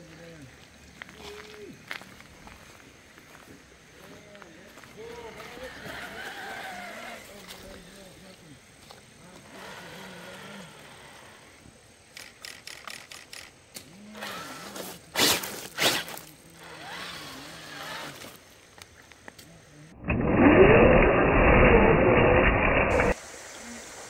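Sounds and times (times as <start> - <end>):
tyres crunching on stones: 1.0 - 10.5
toy car motor whining: 5.6 - 7.8, 9.3 - 11.6, 12.2 - 18.4.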